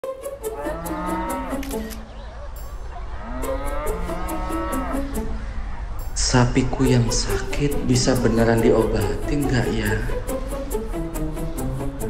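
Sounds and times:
cow mooing: 0:00.5 - 0:01.6, 0:03.2 - 0:05.2.

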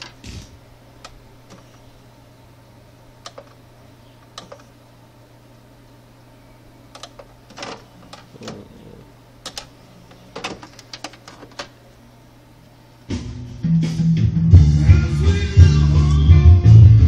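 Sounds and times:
steady low hum: 0:00.0 - 0:17.0
buttons clicking: 0:03.2 - 0:03.6, 0:04.2 - 0:04.7, 0:06.9 - 0:08.6
loud guitar music: 0:13.1 - 0:17.0.

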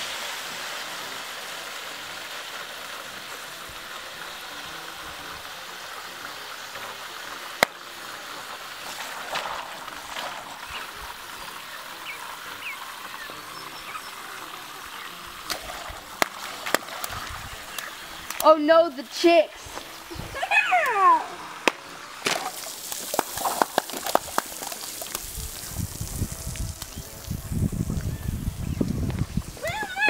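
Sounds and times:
water hissing through hose: 0:00.0 - 0:30.0.

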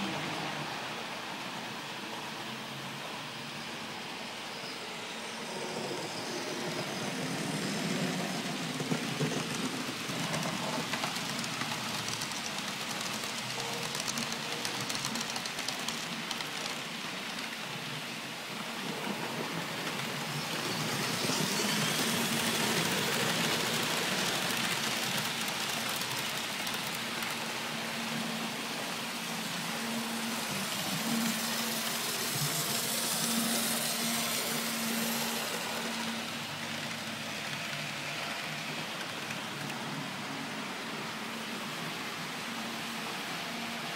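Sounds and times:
model train wheels rattling on track: 0:07.3 - 0:17.8, 0:19.9 - 0:28.0, 0:30.3 - 0:40.0.

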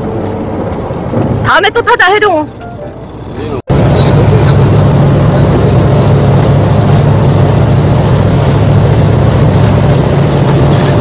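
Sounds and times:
wind: 0:00.0 - 0:11.0
boat engine droning: 0:02.6 - 0:11.0
rush of boat wake: 0:03.2 - 0:11.0.

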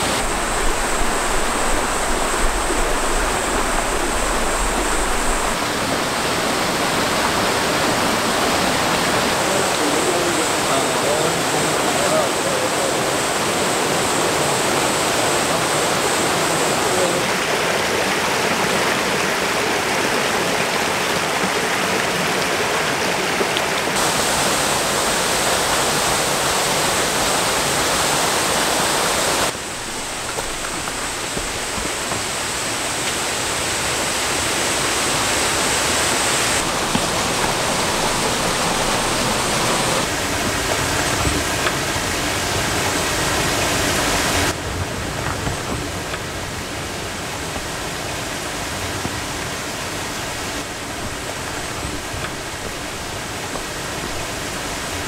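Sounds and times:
stream rushing over rocks: 0:00.0 - 0:55.0.

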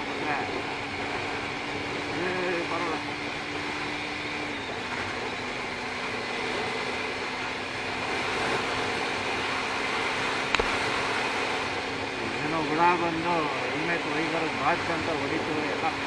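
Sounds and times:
motorcycle engine humming: 0:00.0 - 0:16.0
sharp click: 0:10.5 - 0:10.8.

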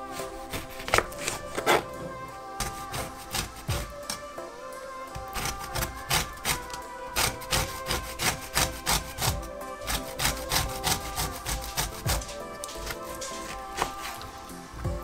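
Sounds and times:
background music: 0:00.0 - 0:15.0
lemon rind rasping on grater: 0:05.3 - 0:14.2.

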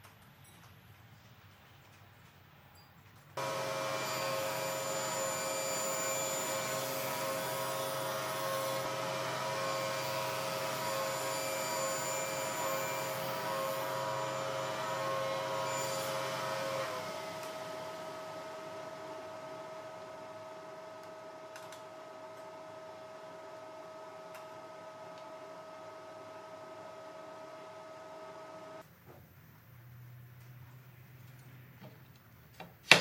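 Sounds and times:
table saw whining: 0:03.4 - 0:28.8.

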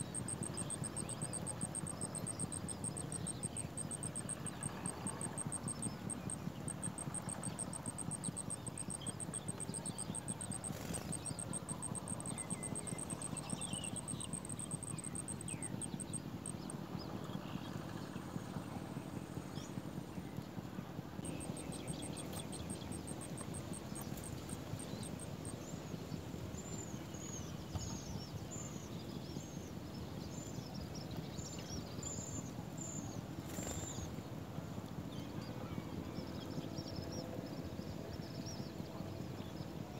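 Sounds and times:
fast high ticking: 0:00.0 - 0:16.6.

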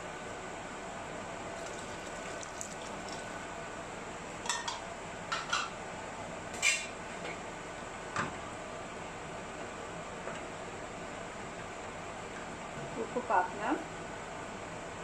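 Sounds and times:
steady hiss of simmering: 0:00.0 - 0:15.0
liquid pouring into a pot: 0:01.5 - 0:03.6
wooden spoon stirring: 0:01.6 - 0:03.4.

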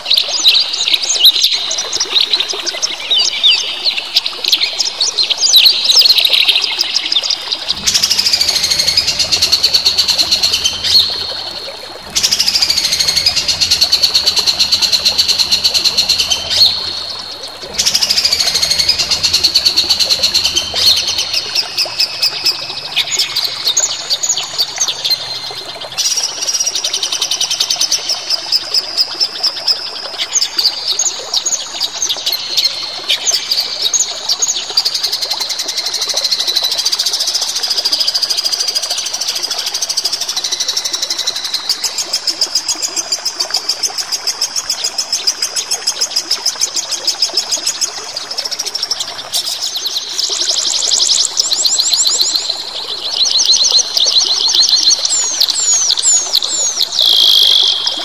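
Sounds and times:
songbirds singing: 0:00.0 - 0:34.8, 0:46.6 - 0:58.0
fast buzzing bird trill: 0:07.7 - 0:11.4, 0:12.1 - 0:17.1, 0:17.7 - 0:23.8, 0:55.7 - 0:58.0.

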